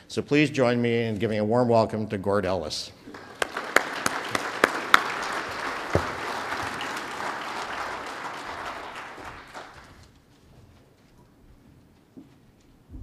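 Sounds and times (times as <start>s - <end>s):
loud single claps close by: 3.1s - 10.0s
audience applauding: 3.1s - 10.1s.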